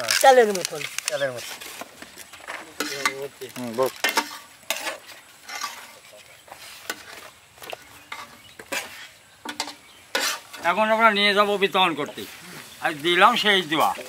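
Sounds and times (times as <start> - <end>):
metal spoons scraping metal bowls: 0.0 - 7.3, 8.0 - 10.9.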